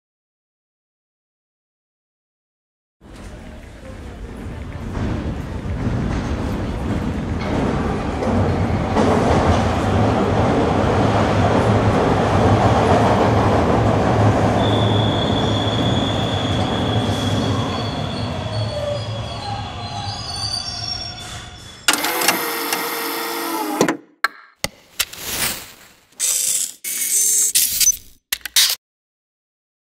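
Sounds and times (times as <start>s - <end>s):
subway train rumble: 3.0s - 21.9s
high wheel squeal: 14.6s - 22.0s.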